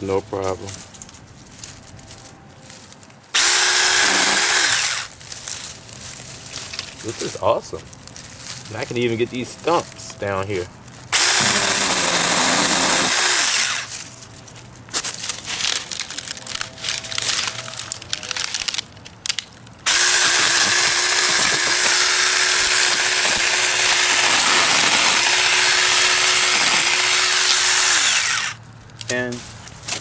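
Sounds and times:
mini chainsaw whining: 3.3s - 5.1s, 11.1s - 14.0s, 19.8s - 28.6s.

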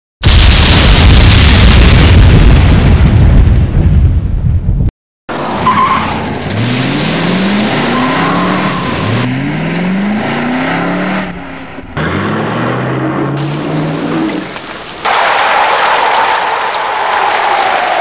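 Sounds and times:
tire squeal: 5.4s - 6.8s, 7.4s - 9.5s
car engine accelerating hard: 5.4s - 14.4s.

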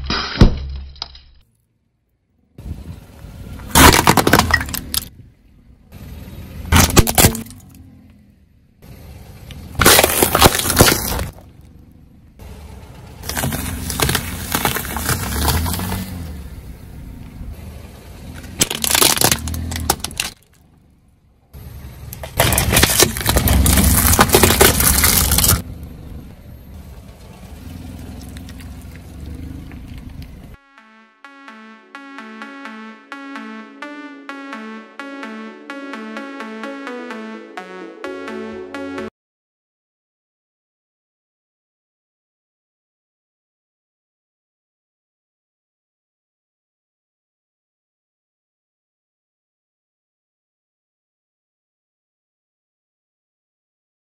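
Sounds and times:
cracking and crunching under wheel: 3.6s - 5.2s, 9.5s - 11.8s, 13.2s - 16.3s, 18.3s - 20.9s, 22.1s - 30.6s
car tyre rolling on asphalt: 7.6s - 30.6s
cardboard tubes being flattened: 9.8s - 11.4s, 13.2s - 15.8s, 18.6s - 20.4s, 22.2s - 25.6s.

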